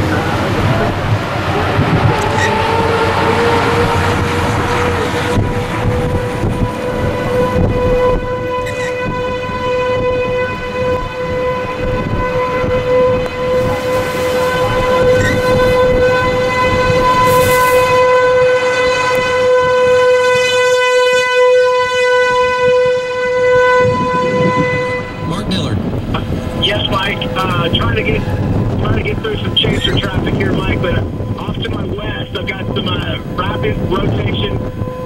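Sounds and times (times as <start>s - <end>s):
warning siren long tone: 0.0s - 35.0s
low rumble: 23.8s - 35.0s.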